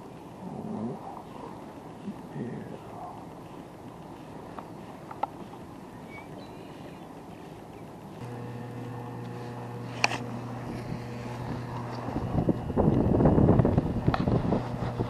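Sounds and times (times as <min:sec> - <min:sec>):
boat motor humming: 0:07.1 - 0:15.0.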